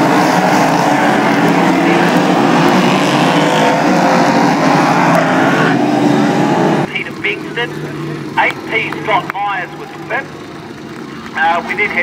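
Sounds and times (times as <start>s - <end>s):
race car engines droning: 0.0s - 12.0s.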